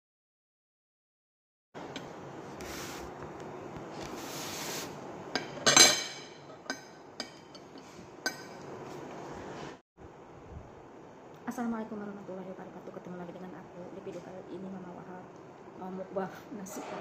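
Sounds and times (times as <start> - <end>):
cutlery clinking on a plate: 5.4 - 8.7.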